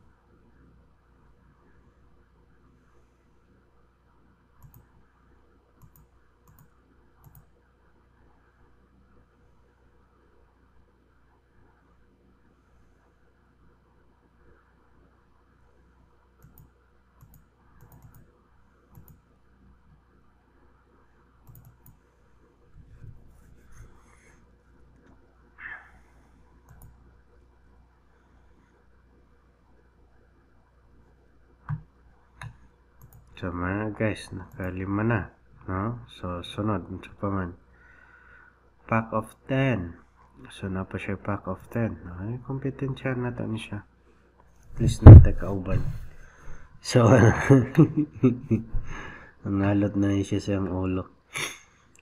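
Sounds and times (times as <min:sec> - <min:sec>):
faint room hum: 0:00.0 - 0:52.0
computer mouse clicks: 0:04.6 - 0:05.0, 0:05.8 - 0:07.5, 0:16.4 - 0:18.3, 0:18.9 - 0:19.2, 0:21.4 - 0:22.0, 0:26.6 - 0:27.0, 0:31.6 - 0:33.4
computer mouse button clicks: 0:21.4 - 0:22.0.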